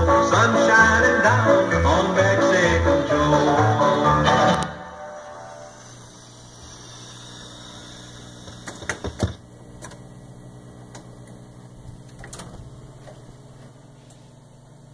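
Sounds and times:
motor hum: 0:04.5 - 0:14.9
record changer clicks: 0:08.4 - 0:10.1, 0:10.8 - 0:13.4.

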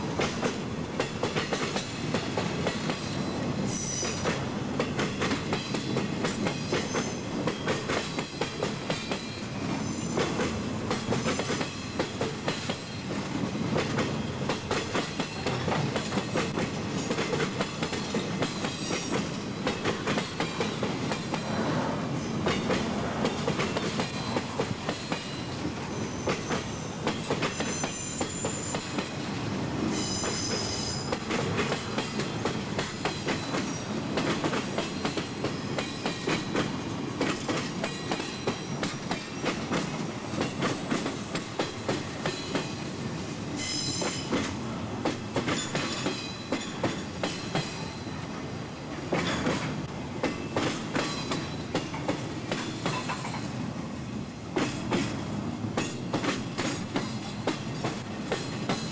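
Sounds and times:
train wheels clicking over rail joints: 0:00.0 - 0:21.8, 0:22.4 - 0:48.0, 0:49.0 - 0:53.7, 0:54.5 - 0:58.9
train wheels squealing: 0:02.7 - 0:13.2, 0:14.0 - 0:36.7, 0:37.3 - 0:40.7, 0:43.6 - 0:44.5, 0:45.5 - 0:48.3, 0:50.2 - 0:53.5.

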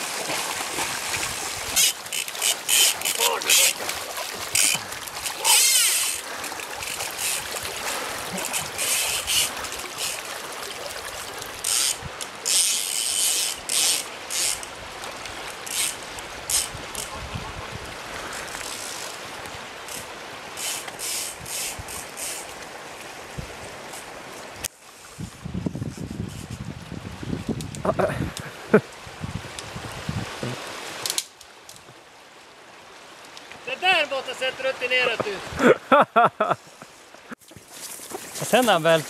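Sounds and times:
water splashing around legs: 0:00.0 - 0:12.0, 0:37.4 - 0:39.0
river rapids rushing: 0:00.0 - 0:14.9, 0:33.6 - 0:36.0.

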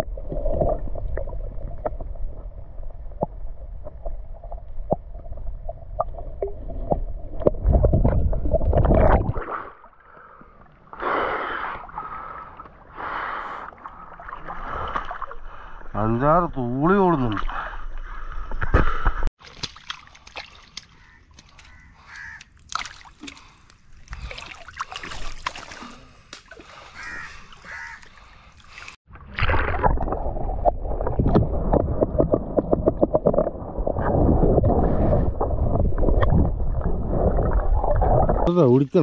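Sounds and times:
water sloshing and splashing: 0:11.7 - 0:38.5
crows cawing: 0:20.9 - 0:22.5, 0:26.8 - 0:28.5.

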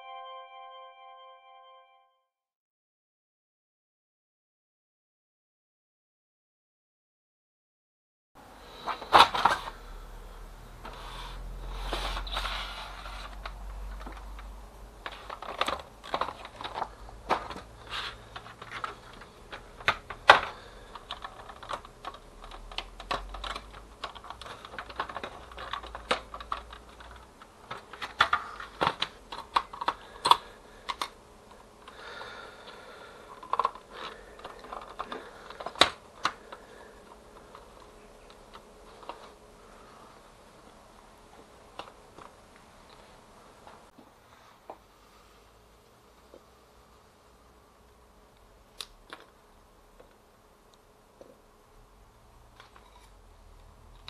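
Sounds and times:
plastic clicks and rattles: 0:13.3 - 0:17.7, 0:18.3 - 0:31.2, 0:33.4 - 0:39.3.

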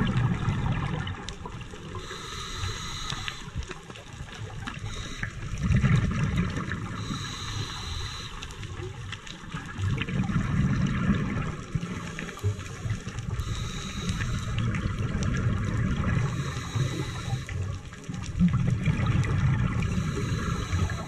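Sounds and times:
underwater water hiss and bubbling: 0:00.0 - 0:21.0.

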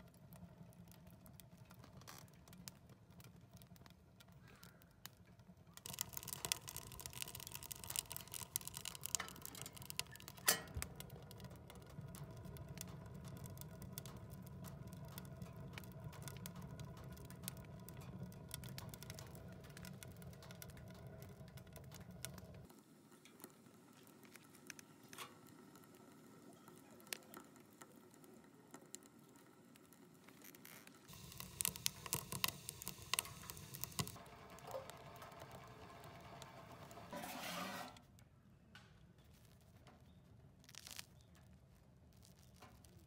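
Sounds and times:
wood fire crackling: 0:00.0 - 0:43.0.

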